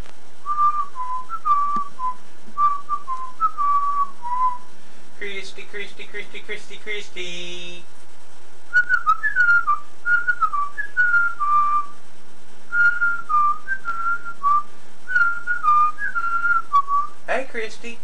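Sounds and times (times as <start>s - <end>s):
person whistling a tune: 0.5s - 4.7s, 8.7s - 12.0s, 12.7s - 17.2s.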